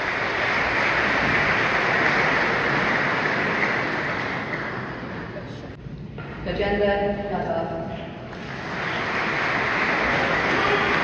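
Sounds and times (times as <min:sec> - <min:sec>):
audience applauding: 0:00.0 - 0:05.6, 0:08.3 - 0:11.0.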